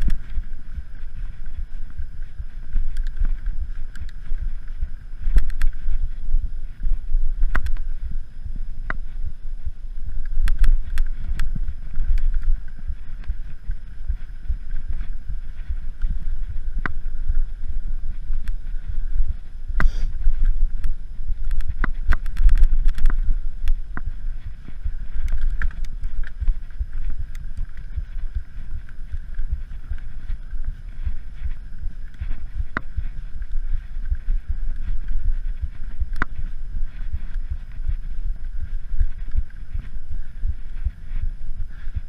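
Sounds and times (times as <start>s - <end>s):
wind rumble on microphone: 0.0s - 42.0s.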